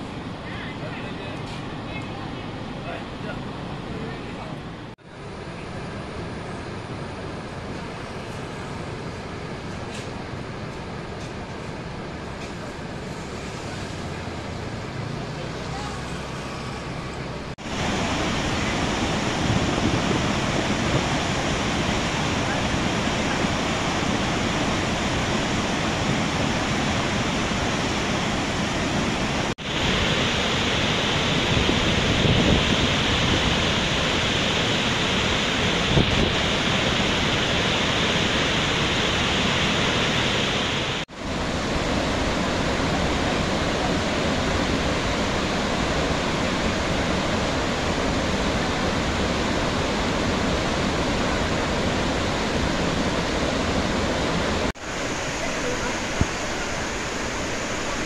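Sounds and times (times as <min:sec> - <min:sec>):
waterfall rushing: 0:12.8 - 0:58.0.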